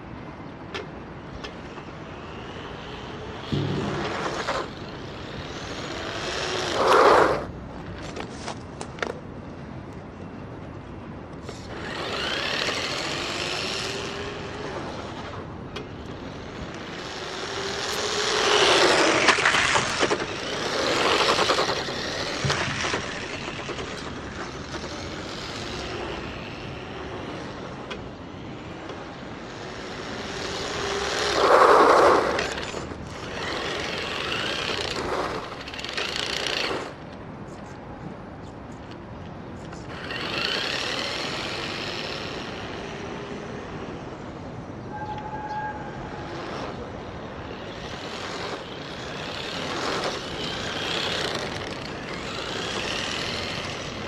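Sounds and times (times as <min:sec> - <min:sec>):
electric rc car motor whining: 0:01.4 - 0:07.5, 0:11.4 - 0:37.0, 0:39.8 - 0:44.1, 0:46.2 - 0:54.0.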